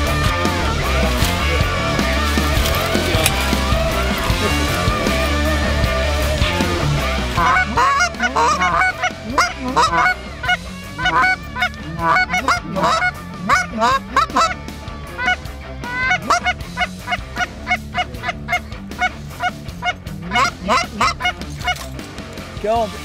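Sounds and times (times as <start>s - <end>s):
geese honking: 0.0s - 22.0s.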